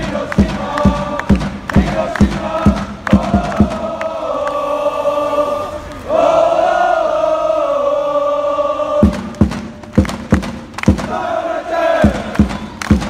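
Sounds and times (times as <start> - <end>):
crowd chanting in unison: 0.0 - 13.0
sharp beats: 9.0 - 11.3.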